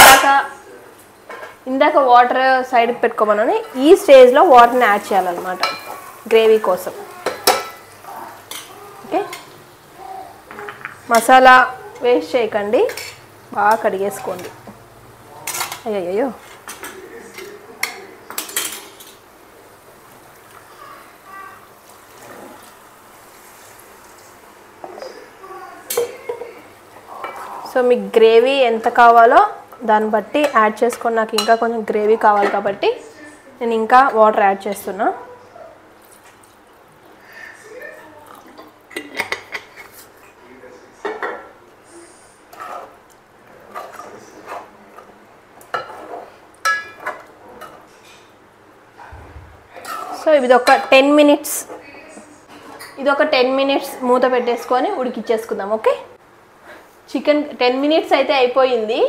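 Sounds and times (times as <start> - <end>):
ladle scraping and clinking pot: 12.9 - 13.2, 42.5 - 48.2, 49.8 - 51.0.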